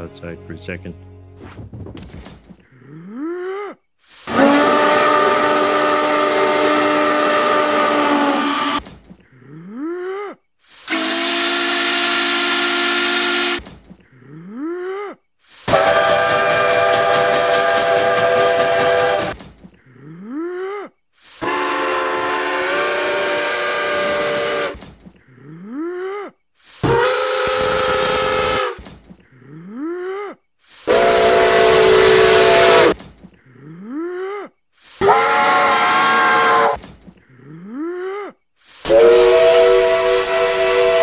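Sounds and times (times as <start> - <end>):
steam locomotive whistle blasts: 4.2 - 8.8, 10.8 - 13.6, 15.6 - 19.4, 21.3 - 24.8, 26.8 - 28.8, 30.8 - 33.0, 35.0 - 36.8, 38.8 - 41.0.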